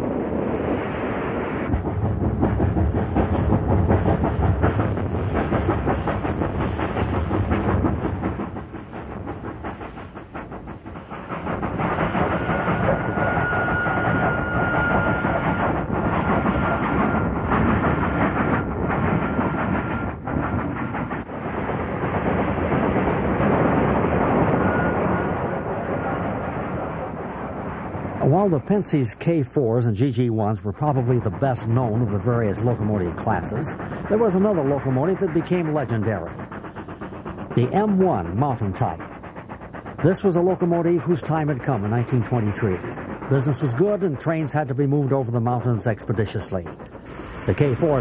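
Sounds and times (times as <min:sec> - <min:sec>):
steam locomotive exhaust: 0:00.0 - 0:48.0
rail clatter: 0:01.7 - 0:48.0.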